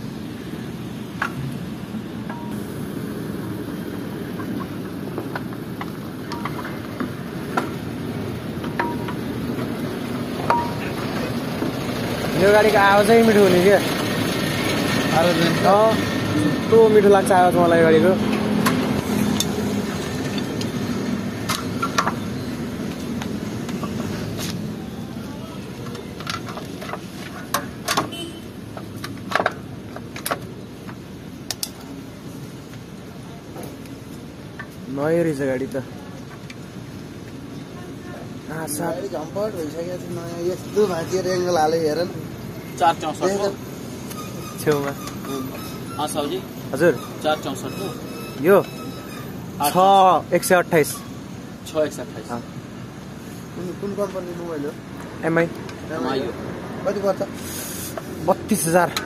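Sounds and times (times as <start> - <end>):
sharp clicks and knocks: 4.3 - 7.8, 21.4 - 22.3, 22.9 - 24.6, 25.8 - 28.1, 28.7 - 32.0.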